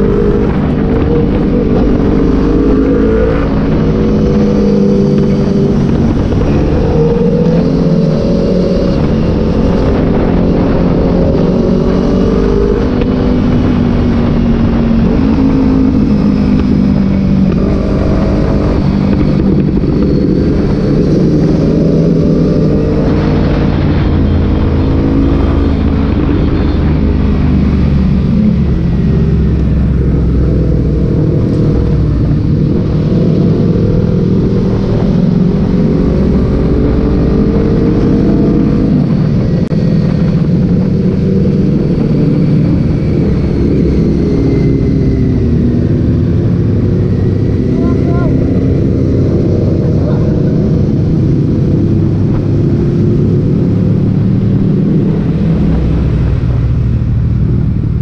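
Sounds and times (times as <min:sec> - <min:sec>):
motorcycle engines revving: 0:00.0 - 0:58.0.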